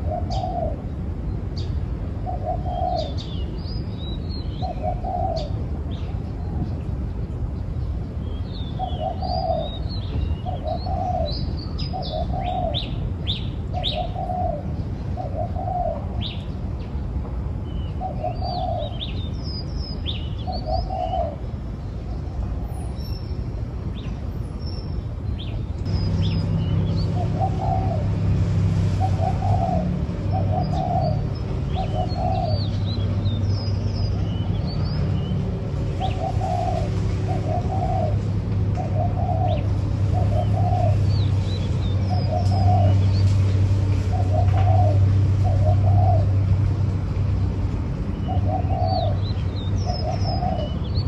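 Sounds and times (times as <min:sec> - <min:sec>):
dove cooing: 0:00.0 - 0:00.8, 0:02.2 - 0:03.2, 0:04.6 - 0:05.6, 0:08.8 - 0:09.8, 0:10.4 - 0:11.3, 0:13.8 - 0:14.6, 0:15.2 - 0:16.3, 0:20.5 - 0:21.4, 0:27.0 - 0:28.4, 0:29.0 - 0:32.8, 0:36.0 - 0:41.1, 0:42.1 - 0:43.0, 0:44.1 - 0:46.4, 0:48.2 - 0:49.2, 0:49.8 - 0:50.8
small birds chirping: 0:00.0 - 0:46.6, 0:47.7 - 0:51.0.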